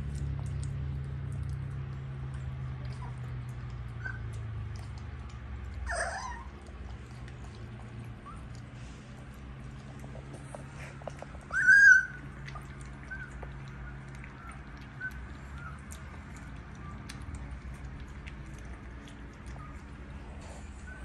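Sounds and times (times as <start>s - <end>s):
steady low hum: 0.0s - 21.0s
puppies squeaking and whimpering: 2.7s - 5.0s, 5.8s - 17.6s, 18.9s - 21.0s
puppy squealing: 4.0s - 4.4s, 5.8s - 6.7s, 11.4s - 15.9s.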